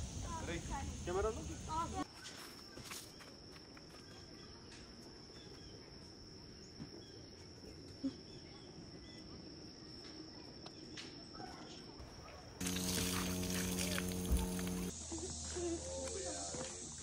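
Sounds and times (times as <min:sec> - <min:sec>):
crickets trilling: 0:12.0 - 0:17.0.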